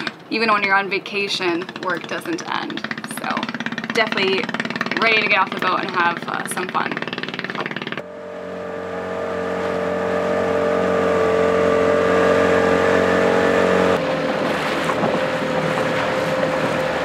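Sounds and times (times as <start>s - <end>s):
outboard motor running: 0.0s - 17.0s.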